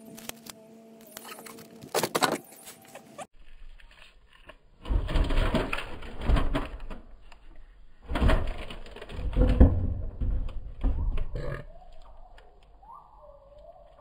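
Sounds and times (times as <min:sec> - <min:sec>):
tape crinkling and rubbing: 0:00.0 - 0:04.7.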